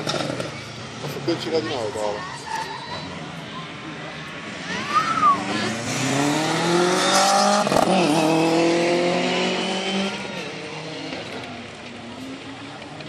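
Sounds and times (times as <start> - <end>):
rally car engine accelerating: 4.3 - 11.6.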